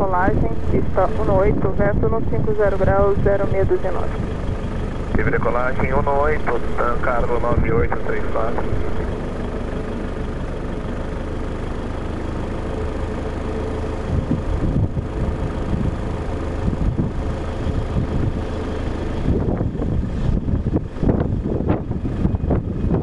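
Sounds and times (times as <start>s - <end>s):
wind buffeting microphone: 0.0s - 9.3s, 14.0s - 23.0s
distant jet engine rumble: 0.0s - 23.0s.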